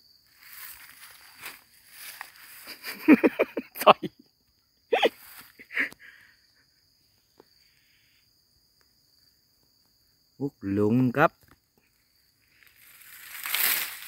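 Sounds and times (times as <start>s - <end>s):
high-pitched insect buzz: 11.8s - 14.0s.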